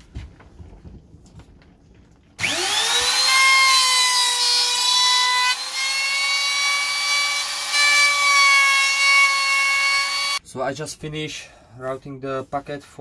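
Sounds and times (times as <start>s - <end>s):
router motor whining: 2.4s - 10.4s.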